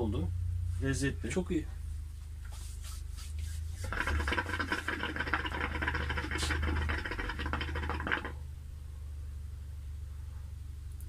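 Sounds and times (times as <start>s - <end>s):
water bubbling in hookah: 3.8s - 8.4s.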